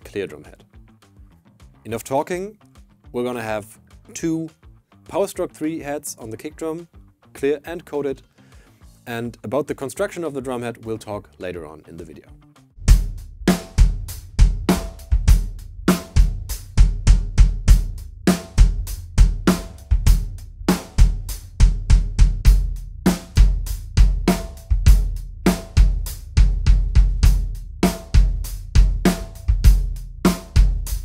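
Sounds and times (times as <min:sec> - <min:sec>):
drum kit groove: 0:00.0 - 0:31.0
bass drum thumps: 0:12.8 - 0:31.0.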